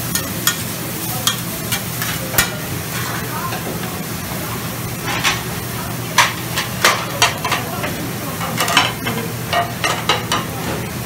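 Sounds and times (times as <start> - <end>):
food sizzling on a griddle: 0.0 - 11.0
metal spatulas clacking and scraping: 1.2 - 3.2, 8.4 - 10.5.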